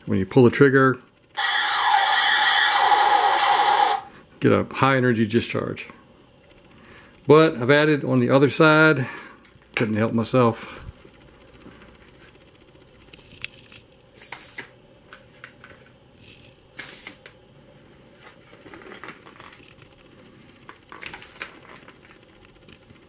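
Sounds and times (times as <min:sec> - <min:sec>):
short bursts of high hiss: 0:14.2 - 0:14.8, 0:16.8 - 0:17.4, 0:21.0 - 0:21.6.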